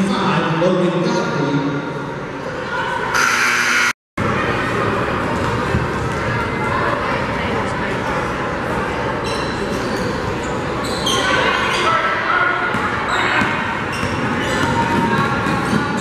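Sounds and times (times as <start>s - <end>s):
voices echoing in a gym: 0.0s - 16.0s
sneakers squeaking: 9.2s - 12.0s, 12.6s - 16.0s.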